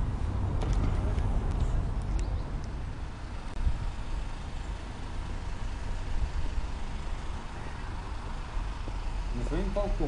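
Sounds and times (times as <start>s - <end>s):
wind buffeting microphone: 0.0s - 4.5s.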